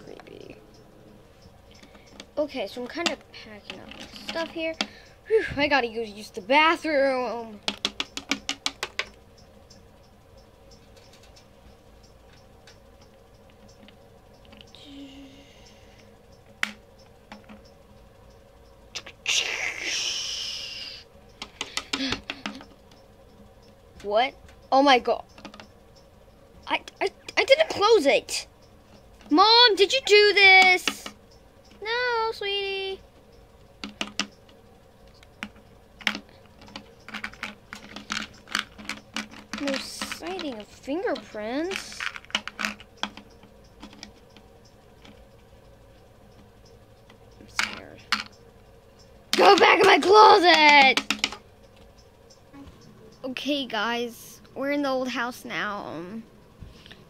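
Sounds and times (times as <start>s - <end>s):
steady low hum: 0.0s - 57.0s
plastic toys clicking on wooden table: 3.0s - 4.9s, 7.6s - 9.2s, 30.6s - 31.2s, 33.8s - 34.5s, 35.2s - 44.4s, 47.5s - 48.3s, 49.3s - 51.4s.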